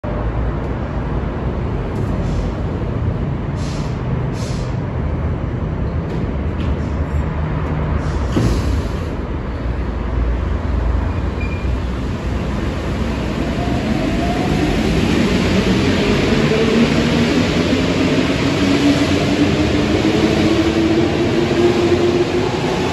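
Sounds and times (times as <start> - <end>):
short air hisses: 3.6 - 4.7
train doors closing: 5.9 - 9.8, 11.0 - 22.9.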